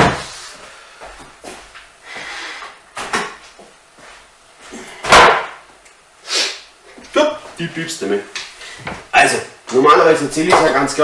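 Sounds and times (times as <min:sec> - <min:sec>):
loud thump: 0:05.0 - 0:05.6.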